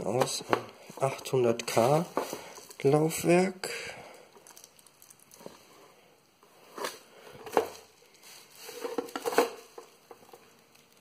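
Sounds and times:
rustling on bubble wrap: 0.8 - 3.3, 4.3 - 5.9, 6.6 - 11.0.

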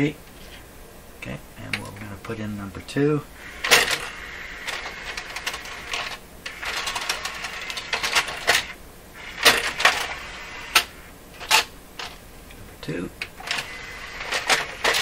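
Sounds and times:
cd changer rattling whir: 1.6 - 15.0.

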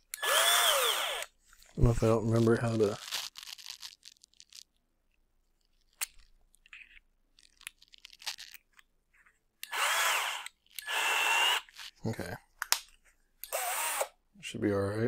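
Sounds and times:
cordless drill motor whining: 0.1 - 1.3, 9.6 - 11.7, 13.4 - 14.2.

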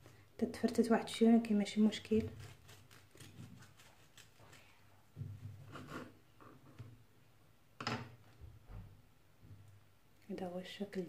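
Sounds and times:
knife scraping cutting board: 2.1 - 4.6, 5.6 - 6.8
knife sawing through cake: 2.1 - 4.7, 5.7 - 6.2.

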